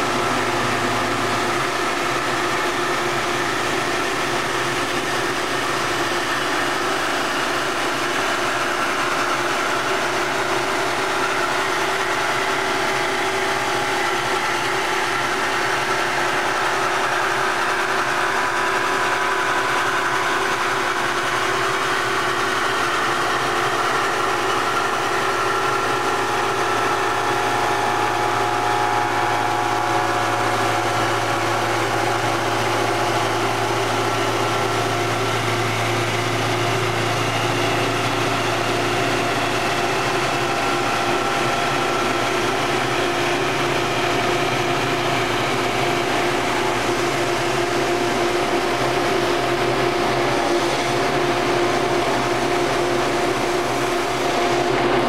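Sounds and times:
low hum: 7.5 - 55.0
lathe cutting wood: 21.5 - 55.0.

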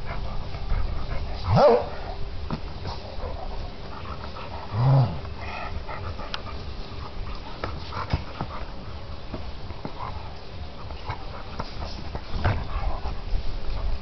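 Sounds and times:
dog play growl: 2.8 - 8.8.

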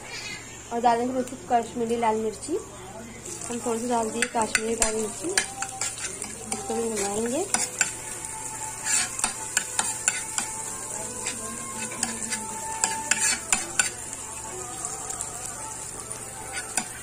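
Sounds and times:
food sizzling in butter: 1.0 - 17.0
spoon scraping a pan: 3.5 - 14.1, 16.4 - 17.0.

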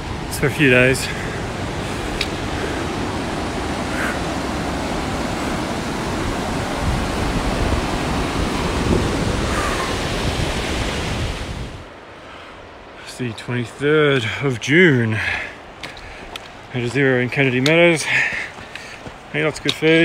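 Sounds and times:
water rushing over boulders: 0.0 - 12.0.

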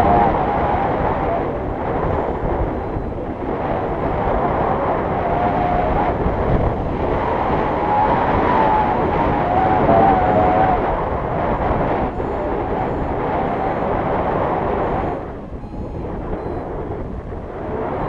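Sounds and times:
wind buffeting microphone: 0.0 - 18.0
faint wavering whistle: 14.8 - 16.7.

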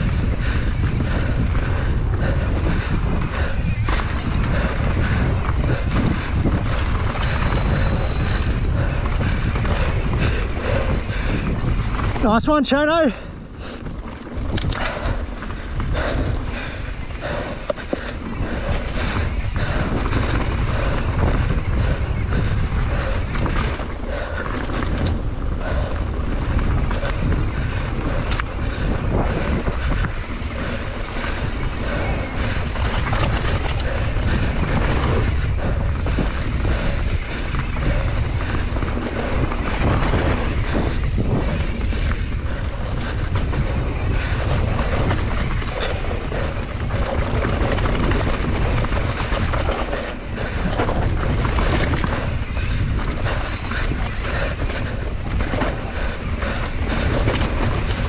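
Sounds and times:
tyres rolling on dirt: 0.0 - 58.0
wind buffeting microphone: 0.0 - 58.0
bike knocks and rattles: 13.8 - 58.0.

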